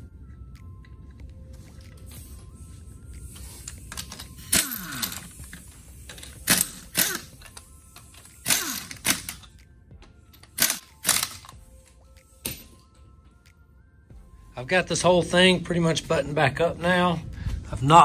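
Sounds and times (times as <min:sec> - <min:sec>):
faint background music: 0:00.0 - 0:18.0
impact wrench bursts: 0:03.6 - 0:09.5, 0:10.4 - 0:11.6.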